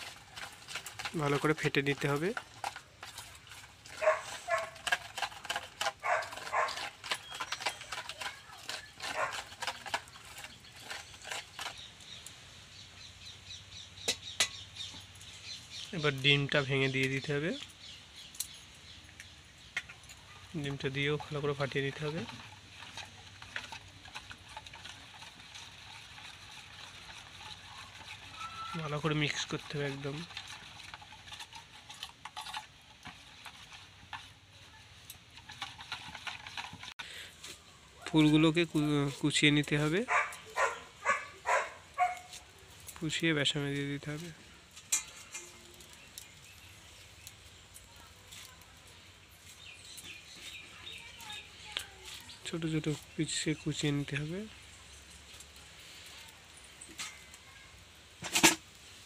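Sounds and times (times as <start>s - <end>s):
small birds chirping: 0.0s - 57.8s
spoon beating batter in metal bowl: 19.2s - 37.1s.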